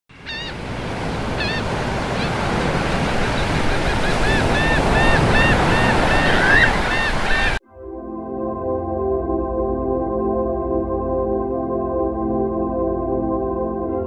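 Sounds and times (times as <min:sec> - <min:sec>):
birds calling: 0:00.1 - 0:07.6
ocean surf washing on beach: 0:00.1 - 0:07.6.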